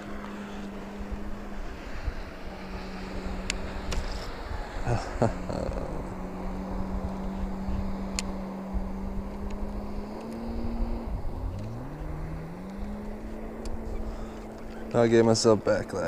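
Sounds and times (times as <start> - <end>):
engine running: 0.0 - 16.0.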